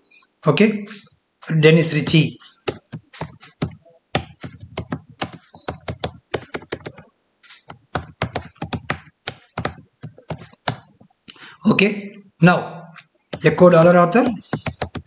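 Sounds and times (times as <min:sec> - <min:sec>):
computer keyboard typing: 0:02.0 - 0:11.1, 0:13.3 - 0:15.0.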